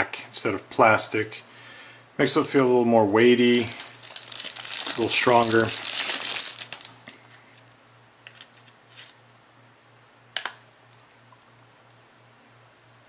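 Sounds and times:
plastic bag crinkling: 3.4s - 7.1s.

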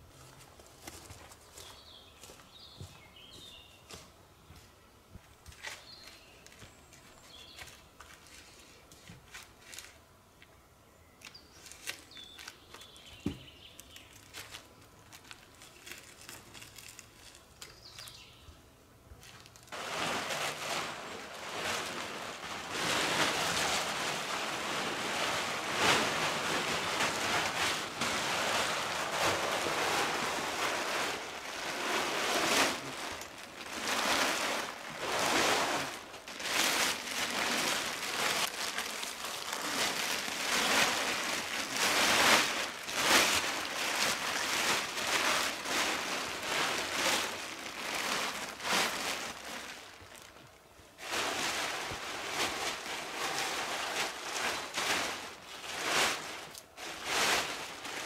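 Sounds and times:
plastic tarp crinkling: 11.5s - 18.2s, 19.2s - 58.0s.

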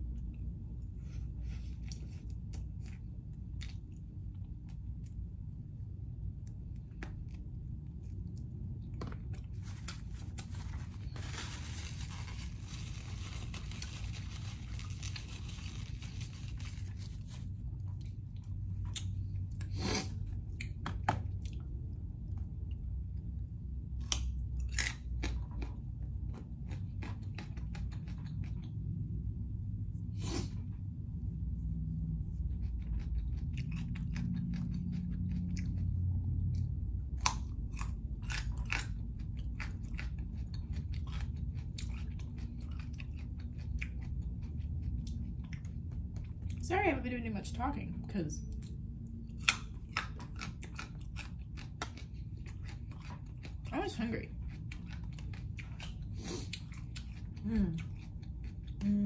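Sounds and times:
chewing raw carrot sticks: 0.0s - 29.5s, 31.6s - 46.6s, 48.4s - 59.0s
paper napkin rustling: 9.5s - 17.6s.

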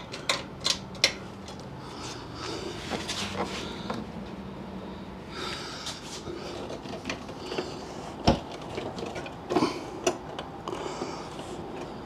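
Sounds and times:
person breathing: 1.7s - 4.2s, 5.2s - 6.7s, 10.6s - 12.0s.

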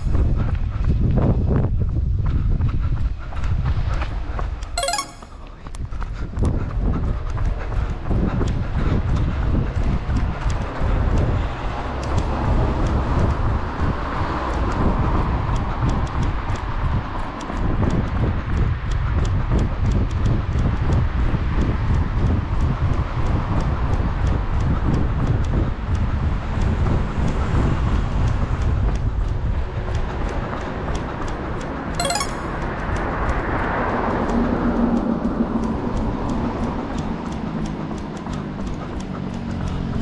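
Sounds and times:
running footsteps on pavement: 0.0s - 4.6s, 5.9s - 31.3s
wind rumbling on microphone: 0.0s - 4.6s, 5.8s - 30.9s
road traffic: 25.7s - 40.0s.

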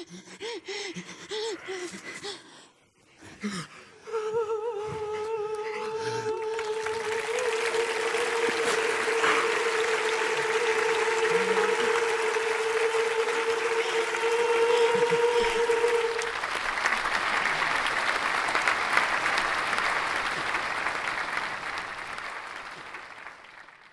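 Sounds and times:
audience applauding: 6.1s - 23.9s
long held note: 7.2s - 16.4s.

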